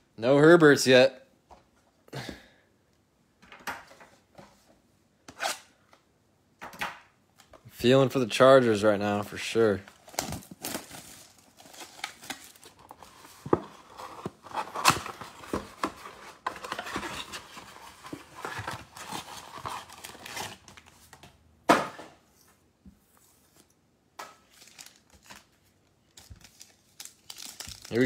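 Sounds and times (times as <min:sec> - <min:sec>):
foil packs crinkling: 0:09.9 - 0:15.7, 0:24.5 - 0:25.5, 0:26.1 - 0:28.0
cardboard tearing and rustling: 0:09.9 - 0:21.0.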